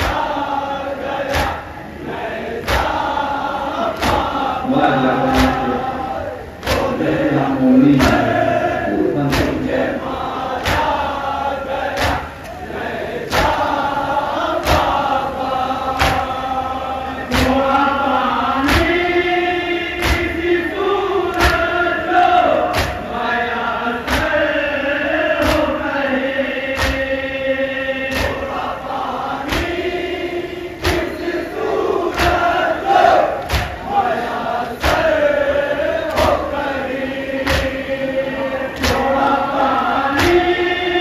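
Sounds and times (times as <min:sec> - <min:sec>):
men chanting in unison: 0:00.0 - 0:41.0.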